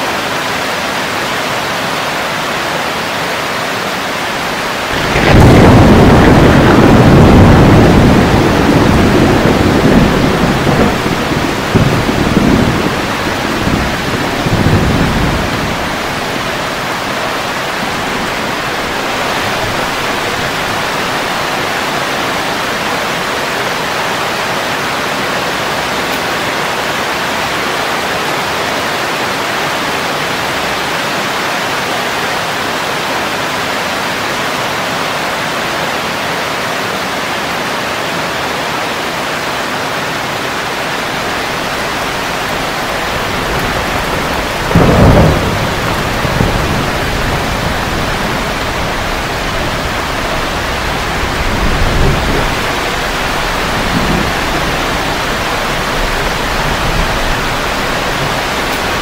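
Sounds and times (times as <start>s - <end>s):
heavy rain on foliage: 0.0s - 59.0s
low thunder rumble: 4.4s - 23.5s, 40.9s - 59.0s.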